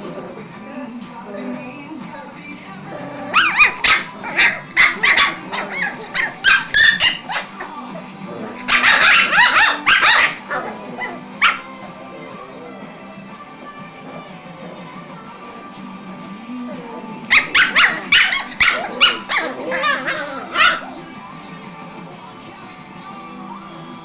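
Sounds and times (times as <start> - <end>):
background music: 0.0 - 24.0
puppies yapping and barking: 3.2 - 12.0, 17.2 - 21.1.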